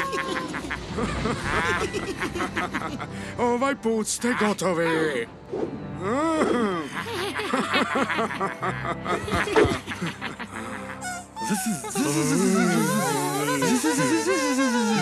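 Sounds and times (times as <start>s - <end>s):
cartoon snickering laughs: 0.0s - 3.1s, 7.0s - 15.0s
background music: 0.0s - 15.0s
cartoon creatures chattering: 11.4s - 15.0s.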